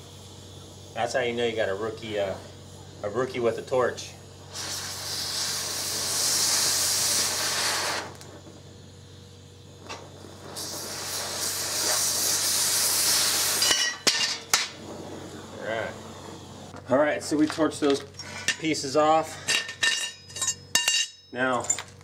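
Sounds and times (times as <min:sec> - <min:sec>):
cutting torch hissing: 0:00.0 - 0:19.6
metal pieces clinking: 0:19.5 - 0:22.0.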